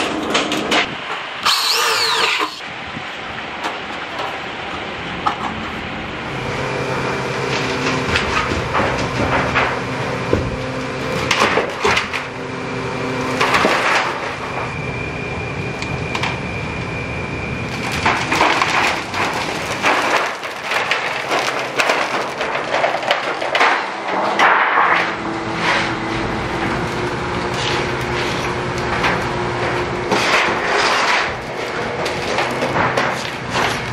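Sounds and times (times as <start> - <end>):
steady machine hum: 0.0 - 33.9
plastic film crinkling: 17.7 - 23.4
metal sheets clattering and scraping: 17.8 - 33.9.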